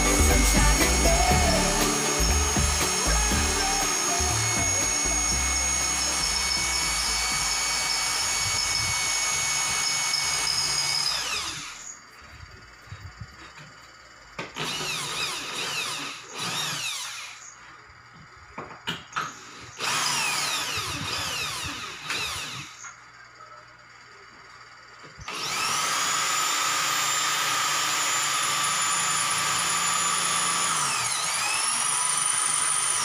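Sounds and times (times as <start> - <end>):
background music: 0.0 - 6.8
electric drill whining: 0.0 - 13.7, 14.4 - 18.3, 19.2 - 23.0, 25.1 - 33.0.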